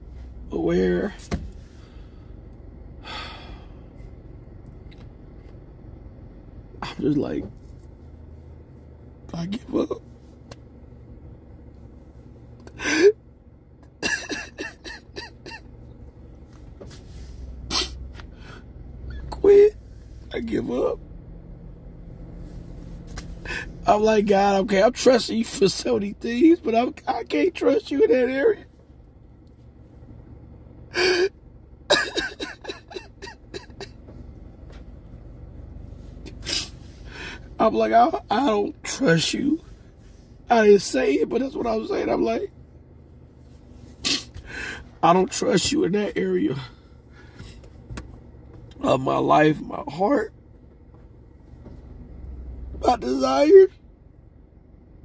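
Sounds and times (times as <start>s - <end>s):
man sobbing: 12.7s - 13.2s, 14.0s - 15.7s, 23.4s - 24.1s, 30.9s - 34.1s
sharp breath intake: 44.4s - 44.9s.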